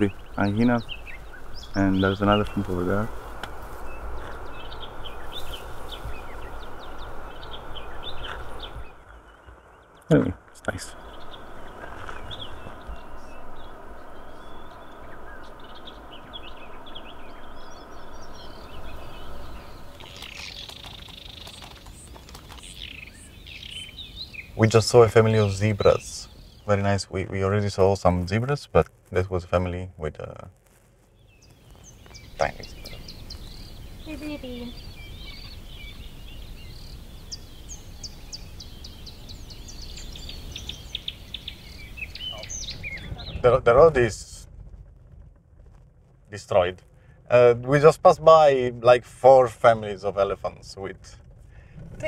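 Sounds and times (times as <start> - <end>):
steady rushing background: 0.0 - 26.9
birds chirping and calling: 0.0 - 27.8, 31.3 - 44.1
dense bird chattering: 0.0 - 27.9, 31.3 - 44.2
steady low rumble: 0.0 - 52.0.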